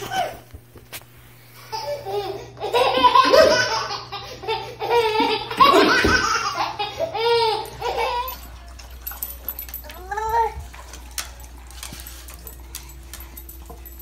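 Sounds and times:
baby laughing: 0:01.6 - 0:08.4.

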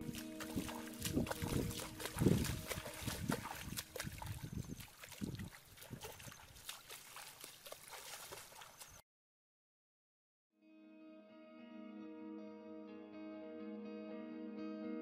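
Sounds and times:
footsteps splashing through water: 0:00.0 - 0:09.0
water dripping: 0:00.0 - 0:09.0.

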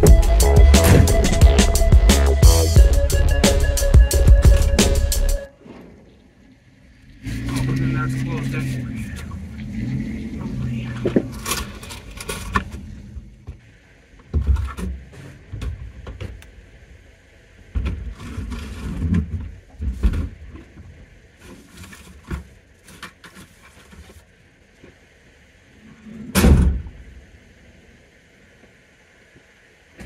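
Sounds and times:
knocks bumps and rustling: 0:00.0 - 0:01.6
loud car door: 0:00.0 - 0:01.6, 0:26.3 - 0:26.9.

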